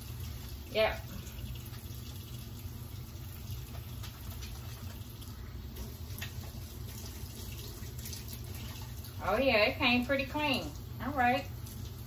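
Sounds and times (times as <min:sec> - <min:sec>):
faucet running into metal sink: 0:00.0 - 0:12.0
item rinsed and wrung out: 0:00.0 - 0:12.0.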